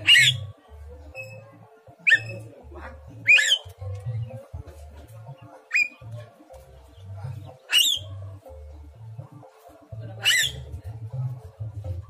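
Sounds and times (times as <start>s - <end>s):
myna harsh calls and whistles: 0.0s - 0.5s, 2.0s - 2.5s, 3.2s - 3.7s, 5.7s - 6.0s, 7.6s - 8.1s, 10.2s - 10.7s.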